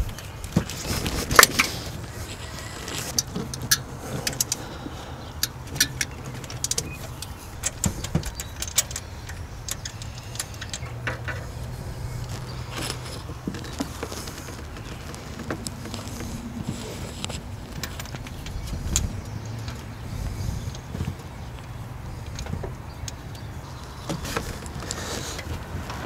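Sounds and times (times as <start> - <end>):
plastic wires clicking and rattling: 0.0 - 26.0.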